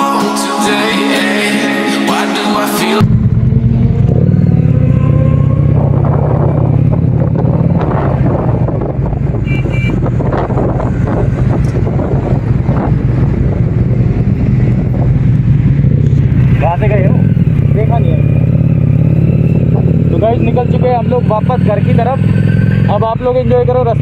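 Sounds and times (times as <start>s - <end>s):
wind noise on microphone: 3.0s - 17.7s, 18.8s - 20.3s
motorcycle engine running: 3.0s - 24.0s.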